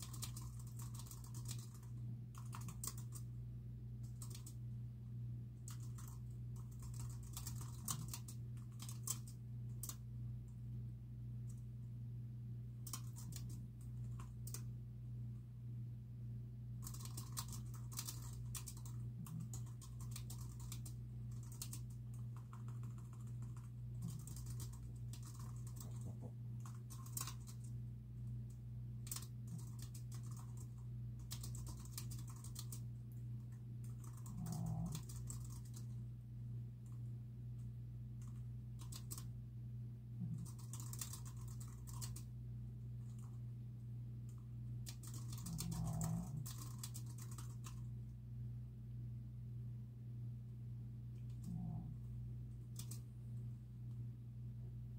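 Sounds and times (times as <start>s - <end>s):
keyboard typing: 0.0s - 3.3s, 4.0s - 4.6s, 5.6s - 10.0s, 12.8s - 14.7s, 16.8s - 27.7s, 29.0s - 32.9s, 33.5s - 36.0s, 38.2s - 39.3s, 40.2s - 42.3s, 44.3s - 47.9s, 52.7s - 53.1s
steady low hum: 0.0s - 54.9s.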